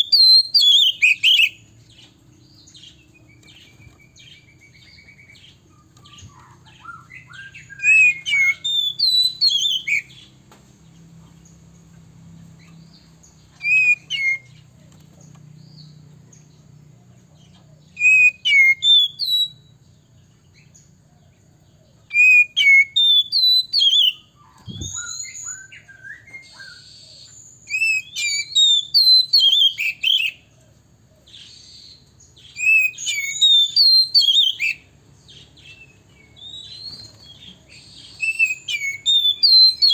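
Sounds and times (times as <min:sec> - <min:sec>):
bird whistling song: 0:00.0 - 0:10.4, 0:12.6 - 0:14.7, 0:17.8 - 0:19.9, 0:22.0 - 0:30.5, 0:31.2 - 0:39.9
soft bird chirps: 0:00.0 - 0:39.9.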